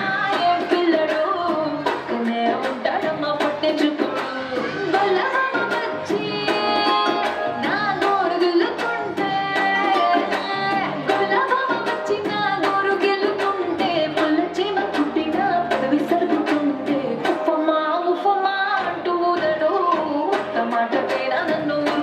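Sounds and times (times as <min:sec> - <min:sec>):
steady drum beat: 0:00.0 - 0:17.4
person singing over loudspeakers: 0:00.0 - 0:22.0.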